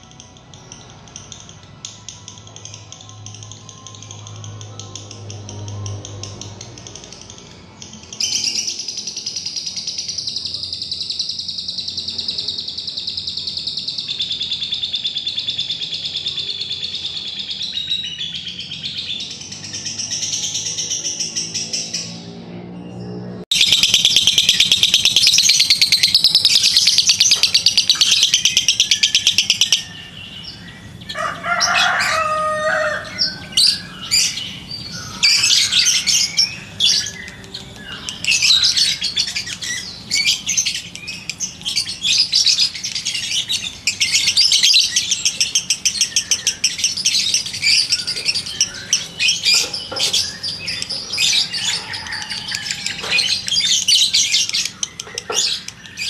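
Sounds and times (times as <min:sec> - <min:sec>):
lovebird chattering trills: 0:23.5 - 0:30.0.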